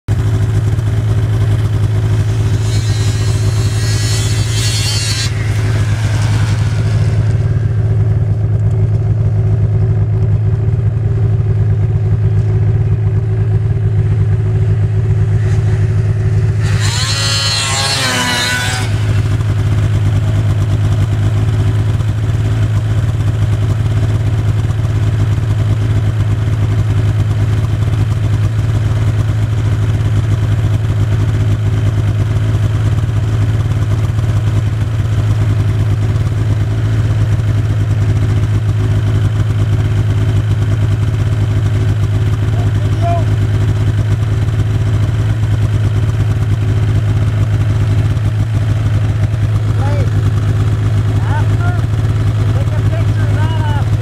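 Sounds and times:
high revving engine whine: 0.1 - 54.0
snowmobile engine drone: 0.1 - 54.0
snowmobile passing by: 2.2 - 8.4.

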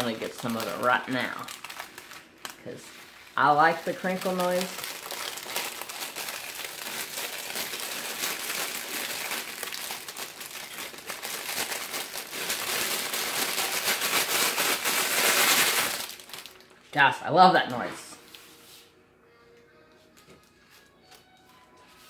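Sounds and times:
plastic bag crinkling: 0.0 - 16.8.

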